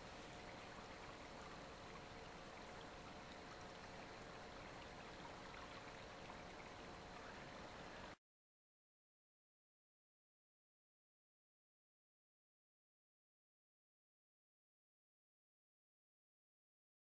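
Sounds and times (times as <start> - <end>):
faint steady hum: 0.0 - 8.2
river flowing: 0.0 - 8.2.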